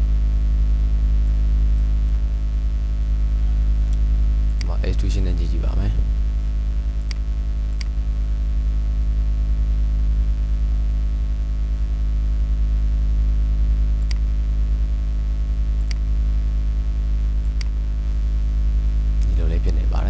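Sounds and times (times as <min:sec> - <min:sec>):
low electrical hum: 0:00.0 - 0:20.0
computer mouse clicks: 0:07.0 - 0:08.0, 0:14.0 - 0:14.3, 0:17.4 - 0:17.8.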